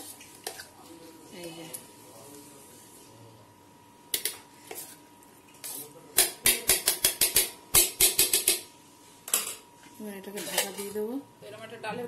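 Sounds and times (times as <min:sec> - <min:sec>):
spoon knocking on steel bowl: 0:06.2 - 0:08.7.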